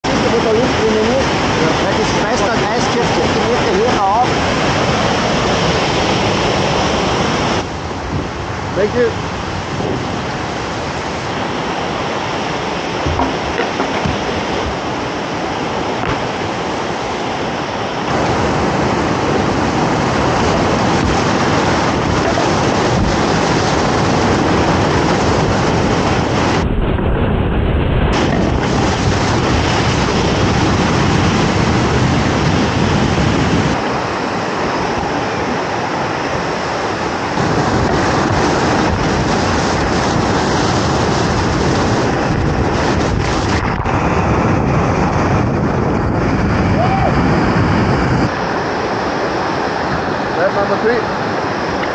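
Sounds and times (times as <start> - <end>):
rushing whitewater of waterfall: 0.0 - 26.6, 28.2 - 51.9.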